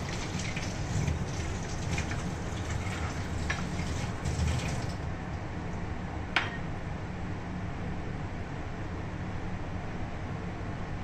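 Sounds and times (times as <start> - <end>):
tap water running into sink: 0.0 - 5.1.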